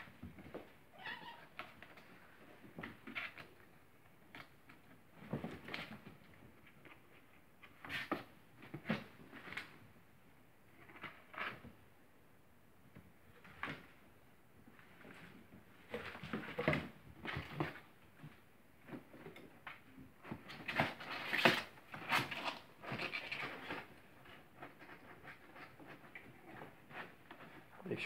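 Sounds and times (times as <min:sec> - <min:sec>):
kittens scuffling: 0:00.0 - 0:11.9, 0:12.8 - 0:28.0
kitten scrabbling in cardboard box: 0:04.3 - 0:09.8, 0:14.8 - 0:27.7.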